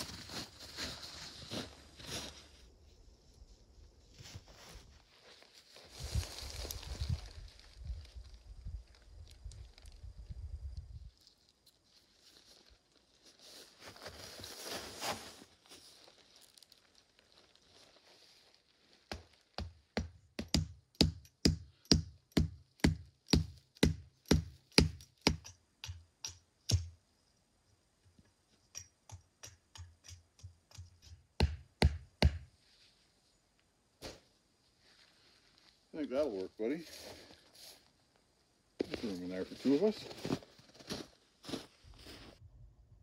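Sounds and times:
tarp fabric rustling: 0:12.0 - 0:19.1
stake being hammered: 0:19.6 - 0:26.9, 0:28.8 - 0:32.5.

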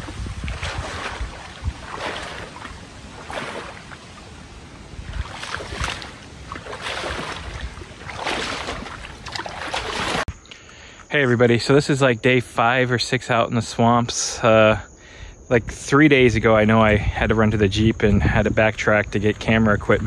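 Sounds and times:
water sloshing from wading: 0:00.0 - 0:10.4.

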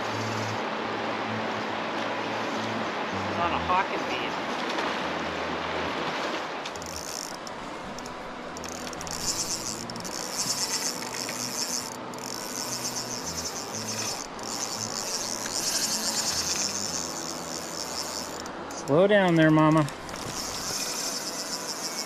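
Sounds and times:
fishing reel drag clicking: 0:00.0 - 0:00.6, 0:02.3 - 0:02.7, 0:06.7 - 0:22.0
river rushing: 0:00.0 - 0:22.0.

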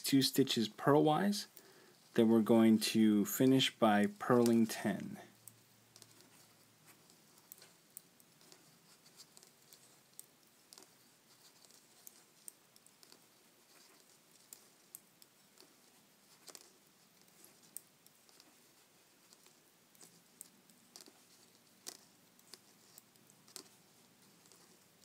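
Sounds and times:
knitting needles clicking: 0:05.3 - 0:25.0.

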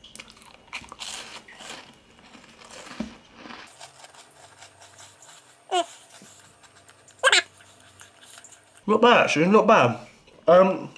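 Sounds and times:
biscuit crunching: 0:00.0 - 0:08.8.

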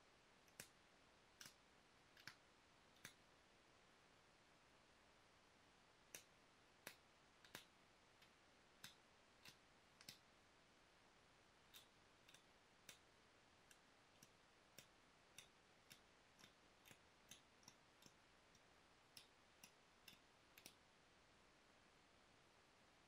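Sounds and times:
stone knapping clicks: 0:00.5 - 0:00.8, 0:01.4 - 0:01.6, 0:02.2 - 0:02.4, 0:03.0 - 0:03.2, 0:06.1 - 0:10.2, 0:13.6 - 0:20.8.

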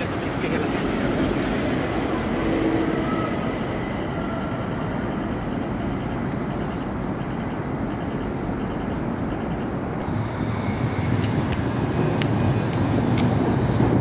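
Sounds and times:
city traffic rumble: 0:00.0 - 0:14.0.

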